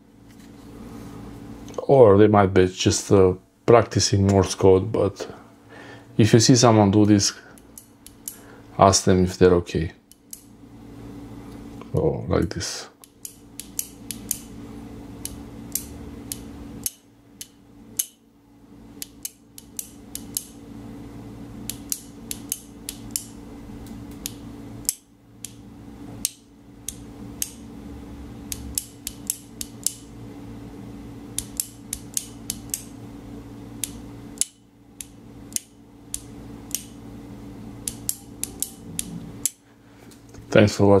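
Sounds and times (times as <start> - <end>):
steady low hum: 0.0 - 41.0
flashlight switch clicking: 33.8 - 36.9.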